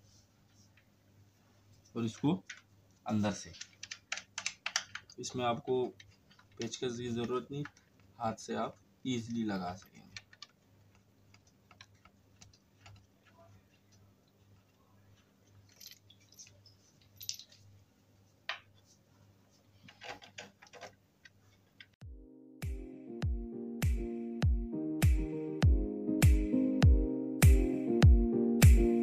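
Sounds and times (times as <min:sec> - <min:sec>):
background music: 0:22.0 - 0:29.0.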